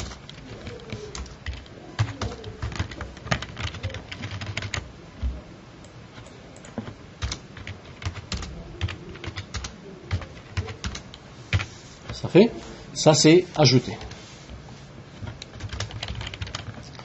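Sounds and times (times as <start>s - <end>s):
computer keyboard typing: 0.0s - 11.7s, 15.2s - 17.0s.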